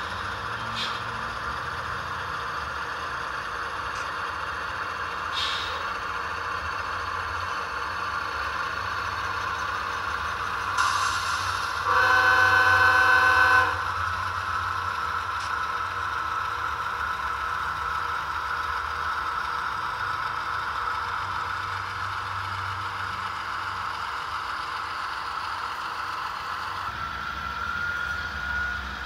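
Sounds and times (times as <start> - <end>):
model locomotive motor hum: 0.0 - 29.0
multi-note train horn: 11.8 - 14.0.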